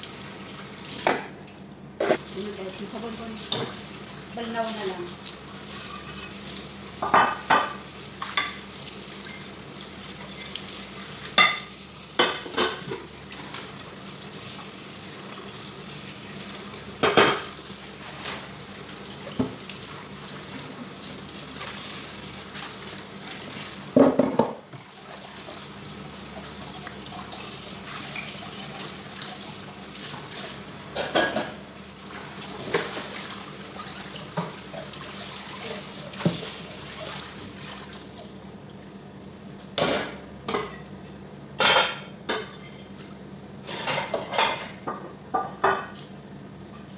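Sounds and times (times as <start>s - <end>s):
dishes and pots clanking: 7.0s - 8.6s, 11.4s - 13.1s, 17.0s - 17.6s, 24.0s - 24.8s, 30.9s - 31.6s, 39.8s - 43.0s, 43.6s - 46.0s
tap water running into sink: 18.8s - 38.4s.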